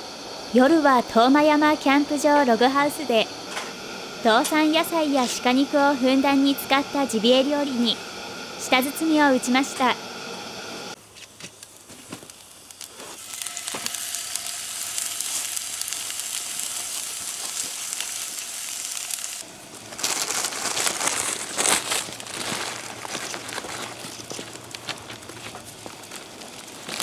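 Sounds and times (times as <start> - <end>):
fire crackling and popping: 10.4 - 27.0
meat sizzling in a skillet: 12.3 - 20.8.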